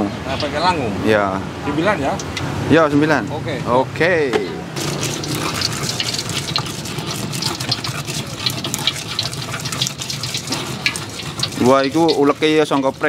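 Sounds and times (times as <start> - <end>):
pestle grinding in clay mortar: 4.8 - 13.0.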